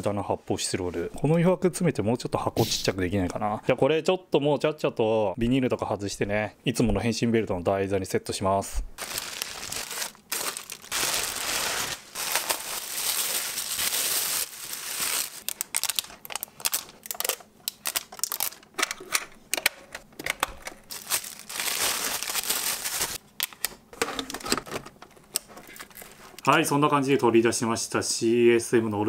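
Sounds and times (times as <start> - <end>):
plastic bags crinkling: 9.0 - 18.7, 20.8 - 23.2.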